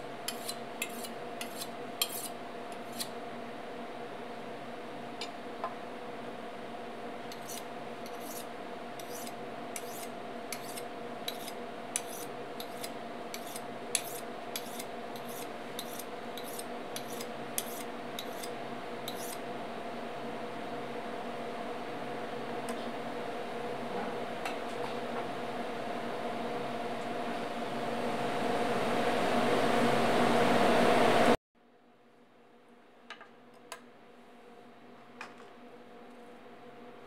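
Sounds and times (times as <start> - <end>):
knife scraping on honing steel: 0.2 - 3.2, 7.3 - 19.4.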